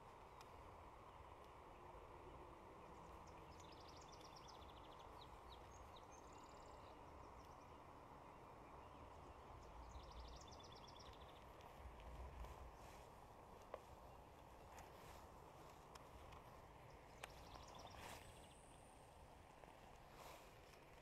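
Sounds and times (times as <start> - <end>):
songbird trilling: 8.6 - 11.5.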